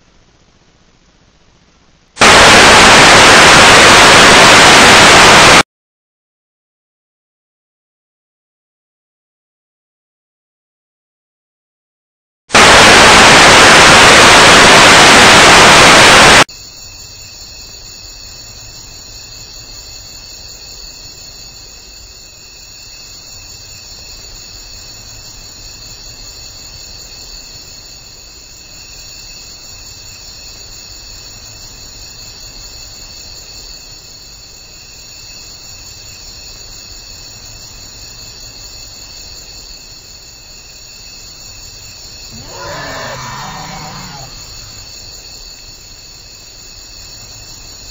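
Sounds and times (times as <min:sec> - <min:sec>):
television static hiss: 0:00.0 - 0:05.6, 0:12.6 - 0:16.4
crickets trilling: 0:16.5 - 0:47.9.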